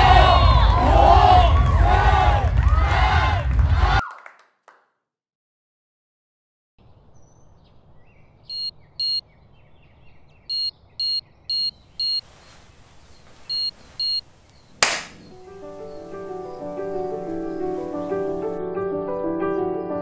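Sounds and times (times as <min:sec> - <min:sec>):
high electronic alarm beeps: 0:08.5 - 0:09.2, 0:10.5 - 0:12.2, 0:13.5 - 0:14.2.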